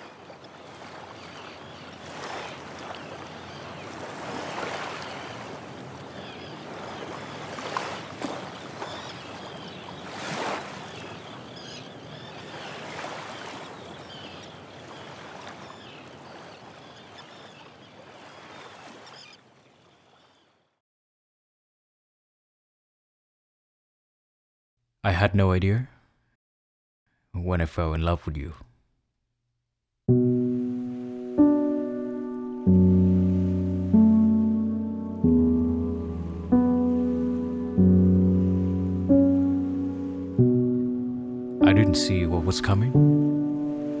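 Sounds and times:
sea waves breaking on rocks: 0:00.0 - 0:11.3.

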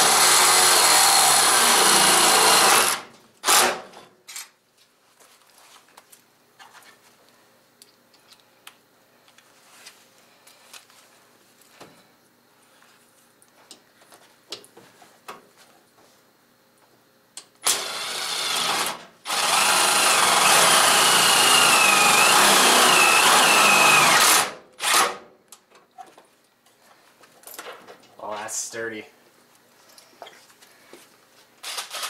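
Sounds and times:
cordless power driver running: 0:00.0 - 0:03.7, 0:17.6 - 0:25.1.

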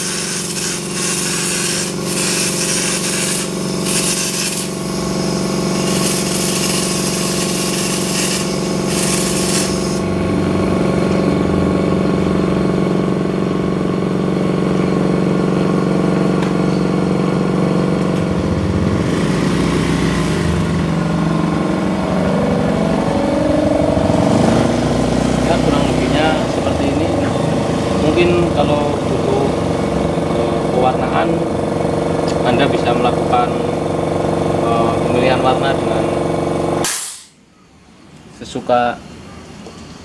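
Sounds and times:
spray gun hissing: 0:00.0 - 0:10.1
air compressor running: 0:00.0 - 0:37.5.

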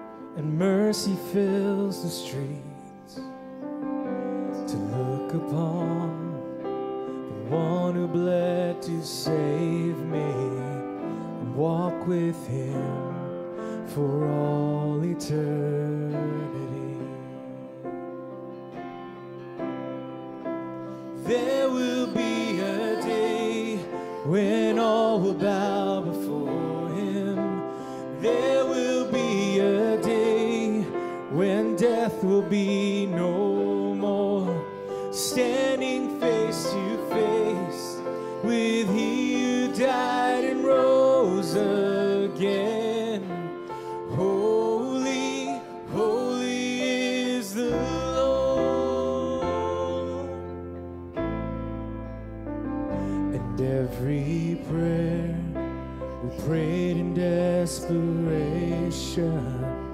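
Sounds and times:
man singing: 0:00.0 - 0:03.3, 0:04.4 - 0:17.8, 0:21.1 - 0:50.6, 0:53.0 - 0:59.9
electric keyboard: 0:00.0 - 0:59.9
acoustic guitar: 0:42.2 - 0:59.9.

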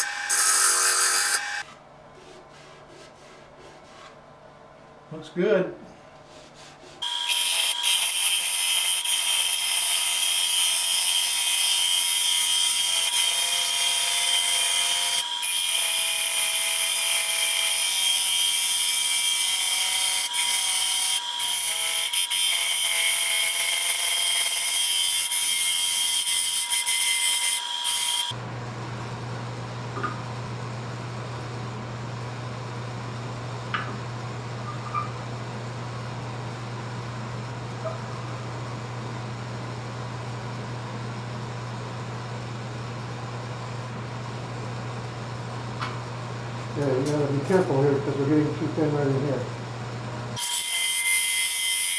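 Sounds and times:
gouge scraping wood on a lathe: 0:01.4 - 0:04.2.

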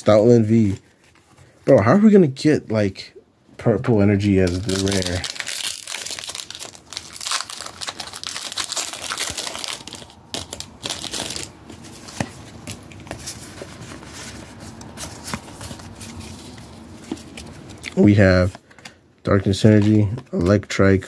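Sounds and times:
foil wrapper crinkling: 0:04.4 - 0:11.8.

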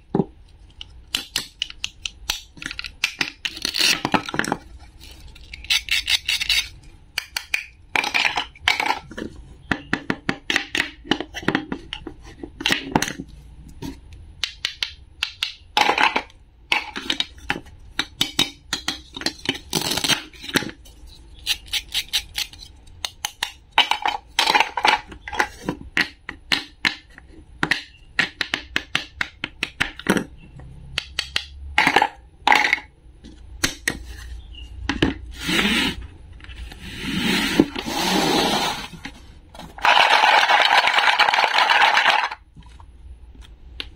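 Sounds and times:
toy knife scraping: 0:05.1 - 0:06.8
toy pieces clicking on wooden board: 0:39.8 - 0:42.4.

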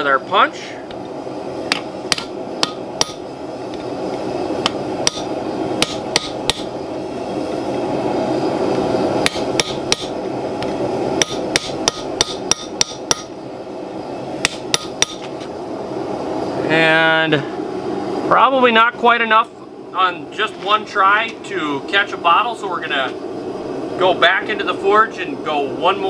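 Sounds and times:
steady background noise: 0:00.0 - 0:26.0
hammer striking metal punch: 0:01.7 - 0:03.2, 0:05.1 - 0:06.7, 0:09.2 - 0:10.1, 0:11.2 - 0:13.3, 0:14.4 - 0:15.2.

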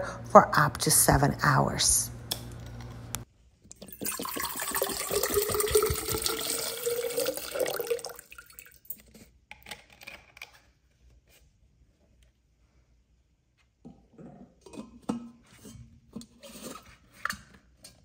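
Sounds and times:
water dripping: 0:03.7 - 0:09.0
water pouring into metal tumbler: 0:03.8 - 0:09.0.

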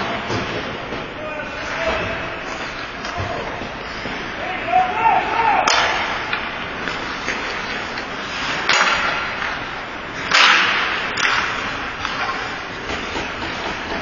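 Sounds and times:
hockey sticks cracking on puck: 0:05.6 - 0:14.0.

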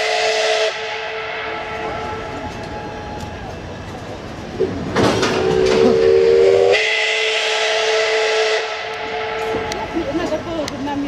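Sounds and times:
steam whistle blast: 0:00.0 - 0:03.2, 0:05.4 - 0:09.8
steam hissing: 0:00.0 - 0:11.0.

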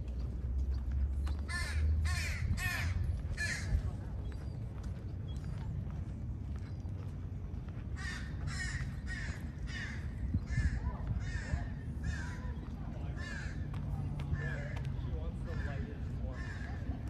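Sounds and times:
low background rumble: 0:00.0 - 0:17.0
crow cawing: 0:01.5 - 0:03.7, 0:08.0 - 0:12.5, 0:13.2 - 0:13.7, 0:15.5 - 0:16.9.

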